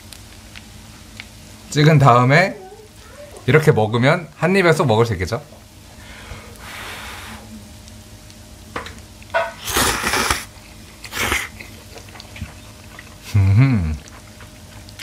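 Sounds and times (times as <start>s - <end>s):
person slurping noodles: 9.6s - 11.6s.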